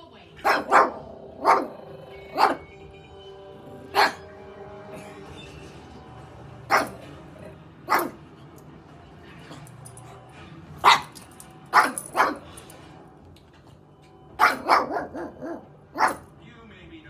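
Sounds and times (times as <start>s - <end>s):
dog barking: 0.4s - 2.7s, 3.8s - 4.3s, 6.7s - 7.1s, 7.8s - 8.2s, 10.8s - 12.6s, 14.4s - 16.3s.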